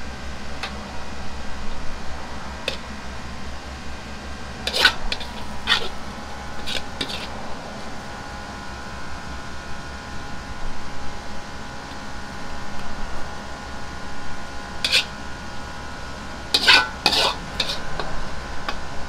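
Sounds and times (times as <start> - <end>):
kitchen hum: 0.0 - 19.0
metal ladle scraping wok: 4.6 - 6.0, 6.6 - 7.4, 14.8 - 15.2, 16.5 - 18.2.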